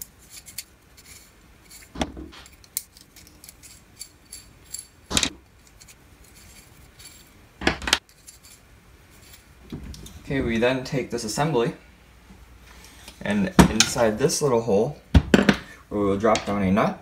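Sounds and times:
metal nuts and washers clinking: 0:00.0 - 0:10.2.

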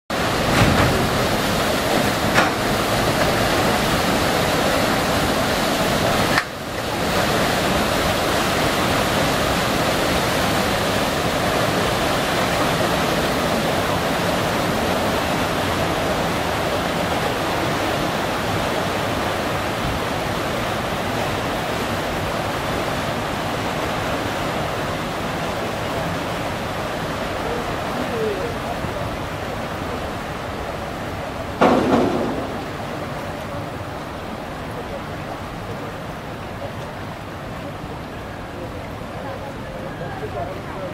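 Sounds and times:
paddle wheels churning water: 0:00.1 - 0:40.9
short knocks: 0:31.6 - 0:32.8.

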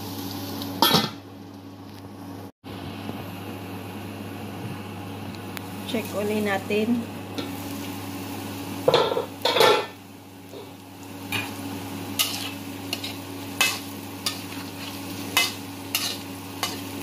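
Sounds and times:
spatula scraping in a wok: 0:08.9 - 0:17.0.

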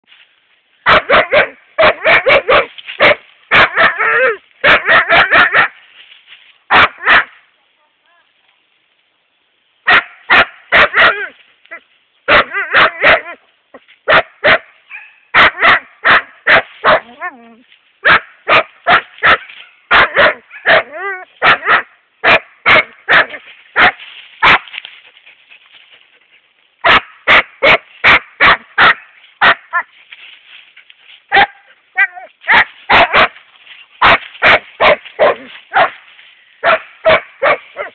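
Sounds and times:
dog barking sharply: 0:00.9 - 0:05.8, 0:06.7 - 0:07.4, 0:09.9 - 0:11.3, 0:14.1 - 0:17.1, 0:18.0 - 0:24.7, 0:26.8 - 0:29.9, 0:31.3 - 0:33.4, 0:34.0 - 0:36.0, 0:36.6 - 0:37.9
dog whining: 0:16.9 - 0:17.6.

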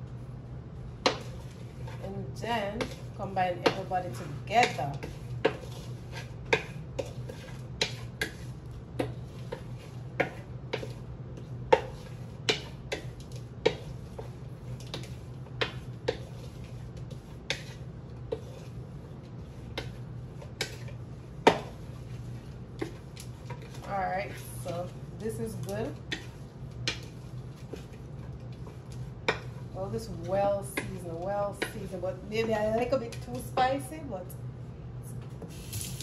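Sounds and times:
steady low hum: 0:00.0 - 0:36.0.

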